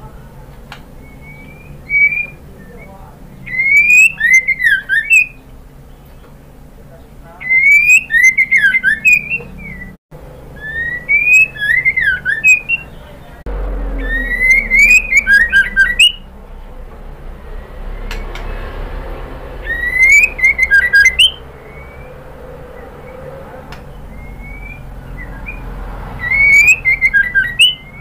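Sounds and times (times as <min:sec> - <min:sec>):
bird whistled song with clicks: 0:00.7 - 0:02.4, 0:03.5 - 0:05.4, 0:07.5 - 0:10.0, 0:10.6 - 0:12.9, 0:14.2 - 0:16.2, 0:19.6 - 0:22.1, 0:26.2 - 0:28.0.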